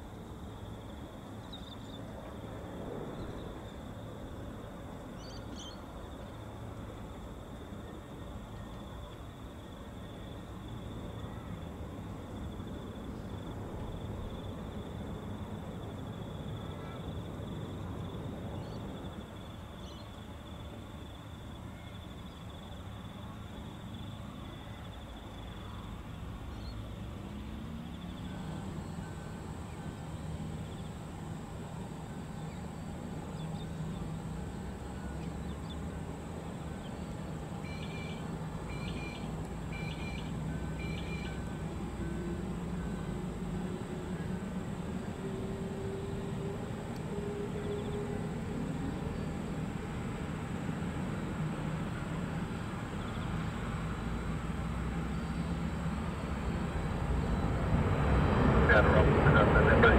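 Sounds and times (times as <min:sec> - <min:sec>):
jet engines droning: 0:00.0 - 0:59.9
turboprop engines rumbling and whining: 0:00.0 - 0:59.9
bird chirps: 0:37.6 - 0:41.4.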